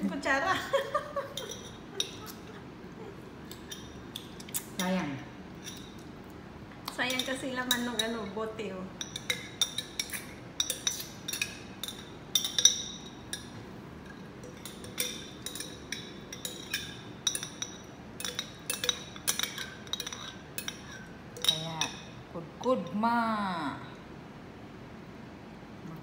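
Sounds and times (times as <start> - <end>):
spoon clinking in glass jar: 1.3 - 2.4, 3.5 - 4.6, 5.6 - 6.0, 7.1 - 8.2, 9.0 - 22.2.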